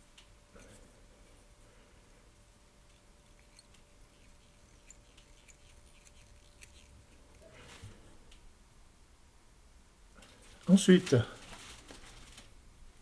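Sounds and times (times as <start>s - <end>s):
soft rustle of thread: 2.7s - 8.3s, 10.2s - 12.6s.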